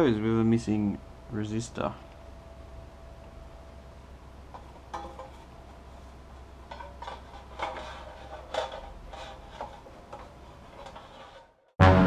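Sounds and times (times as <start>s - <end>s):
sheet-metal cover clinking and scraping: 4.6s - 11.6s.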